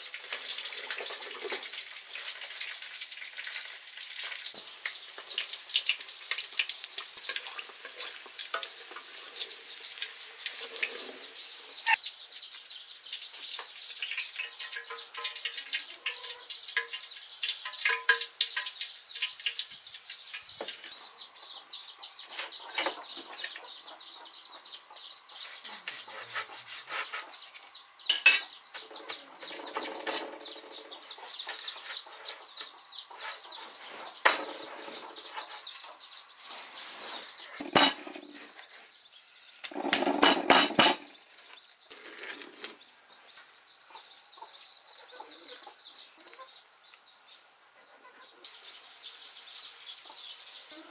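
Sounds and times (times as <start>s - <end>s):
hot oil sizzling: 0.0s - 22.6s, 25.3s - 43.1s
chickens clucking: 4.5s - 12.1s, 13.3s - 38.9s, 39.6s - 46.7s, 47.8s - 48.6s
knife cutting crispy pork: 25.5s - 27.1s.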